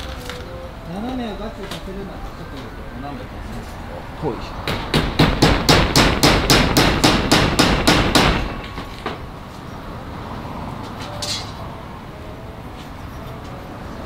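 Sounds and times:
hammer driving a nail: 4.6 - 9.2.

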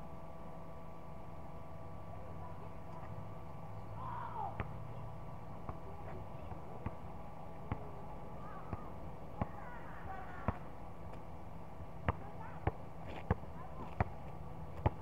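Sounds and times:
steady hum: 0.0 - 15.0
basketball bouncing: 7.7 - 7.9, 8.7 - 9.6, 10.4 - 10.7, 12.0 - 14.2, 14.8 - 15.0.

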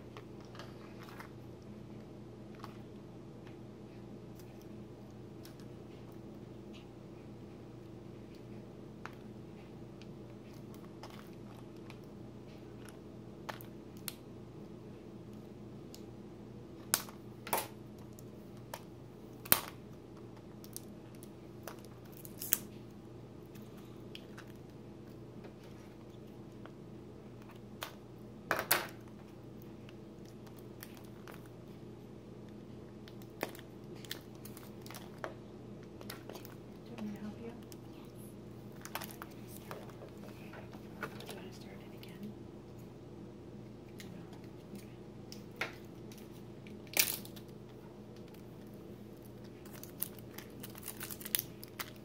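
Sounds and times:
steady low hum: 0.0 - 52.0
plastic wrap crinkling and tearing: 20.5 - 22.8, 33.1 - 35.3, 46.1 - 47.5, 49.1 - 52.0.

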